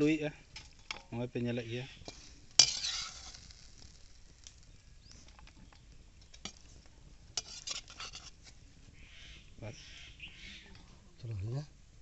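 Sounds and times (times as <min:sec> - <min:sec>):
metal spatula scraping pan: 0:01.9 - 0:04.0, 0:07.3 - 0:08.6.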